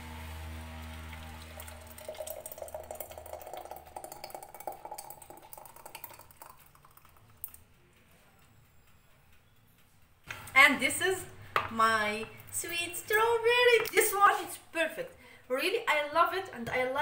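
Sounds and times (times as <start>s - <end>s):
thick jam pouring into a jar: 0.8s - 7.6s.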